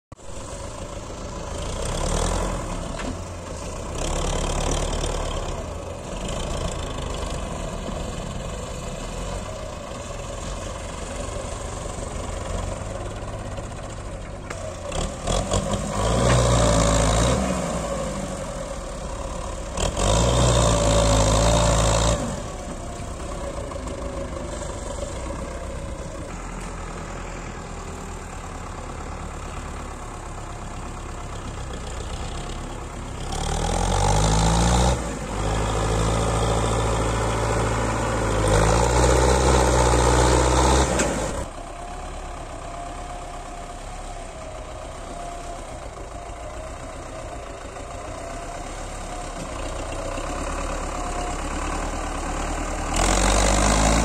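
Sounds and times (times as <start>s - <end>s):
tractor diesel engine revving: 0.2s - 54.0s.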